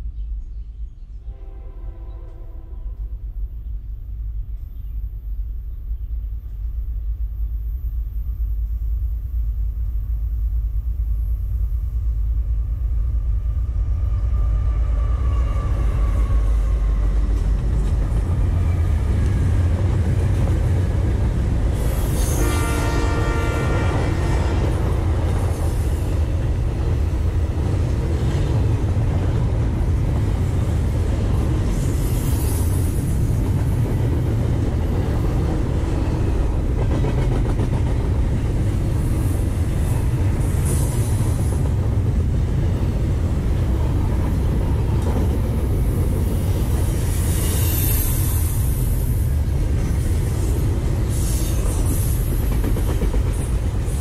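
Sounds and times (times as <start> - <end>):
freight train rumbling past: 0.0 - 54.0
locomotive air horn: 1.2 - 3.1, 22.2 - 24.8
rail clatter: 24.5 - 48.2, 49.3 - 54.0.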